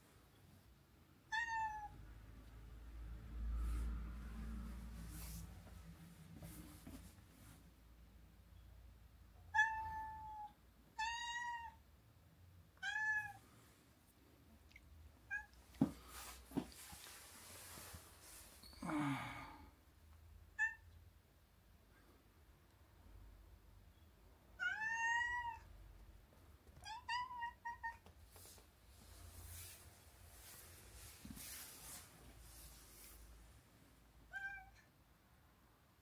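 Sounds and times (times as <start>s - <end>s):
cat meowing: 1.3s - 2.0s, 9.5s - 11.8s, 12.8s - 13.4s, 20.6s - 20.8s, 24.6s - 25.7s, 26.8s - 28.1s, 34.3s - 34.9s.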